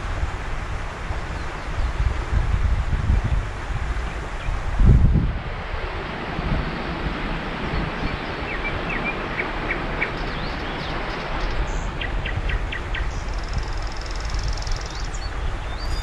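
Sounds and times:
flowing river water: 0.0s - 16.0s
wind: 0.0s - 16.0s
small birds chirping: 7.9s - 16.0s.

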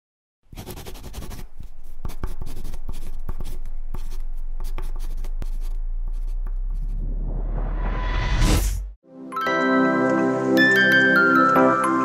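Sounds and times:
pencil scratching on paper: 0.5s - 7.0s
low hum: 1.6s - 9.0s.

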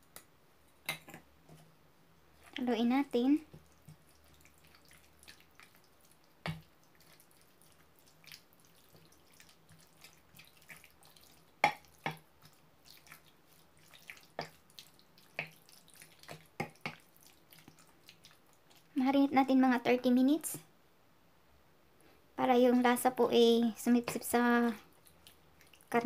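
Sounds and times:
spoon stirring wet marinade: 0.8s - 19.3s, 23.8s - 26.0s.

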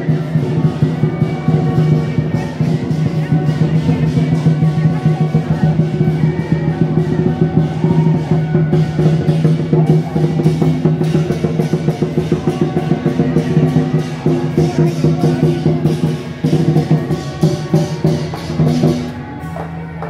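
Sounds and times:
cymbals clashing: 0.0s - 20.0s
drum beating: 0.0s - 20.0s.

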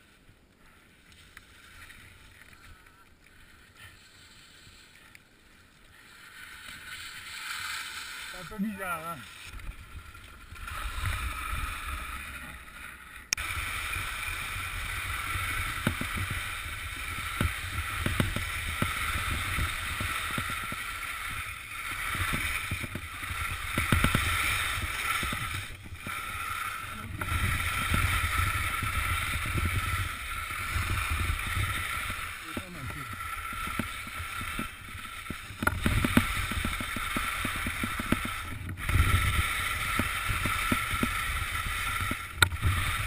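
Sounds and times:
skis sliding and scraping on snow: 0.0s - 43.0s
wind rumbling on microphone: 13.4s - 43.0s.

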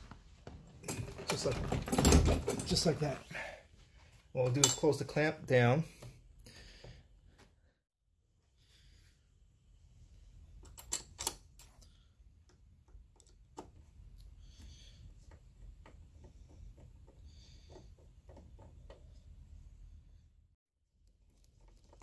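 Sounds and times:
ticks and knocks of handling parts: 15.0s - 19.2s.

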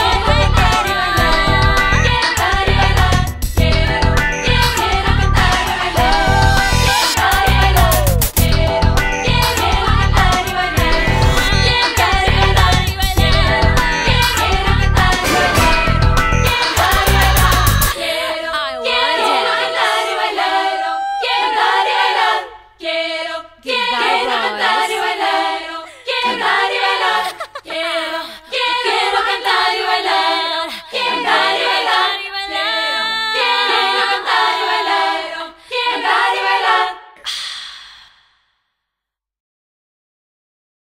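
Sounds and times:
pop song with band: 0.0s - 18.9s
voices singing unaccompanied: 0.0s - 37.2s.

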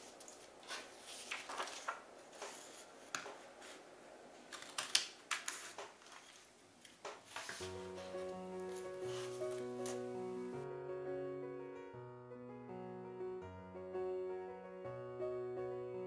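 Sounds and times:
paper rustling: 0.0s - 3.9s, 4.5s - 10.2s.

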